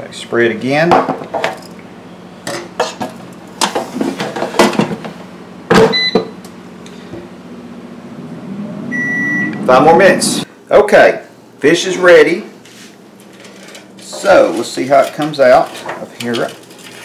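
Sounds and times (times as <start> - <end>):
low steady hum: 0.0 - 17.0
short electronic beep: 8.9 - 9.7.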